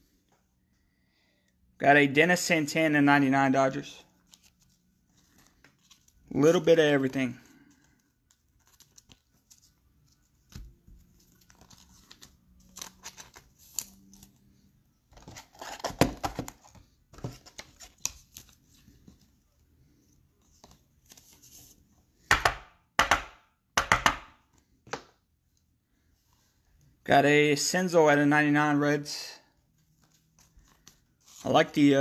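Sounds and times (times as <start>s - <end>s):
cards rustling and sliding: 4.1s - 22.3s, 29.6s - 32.0s.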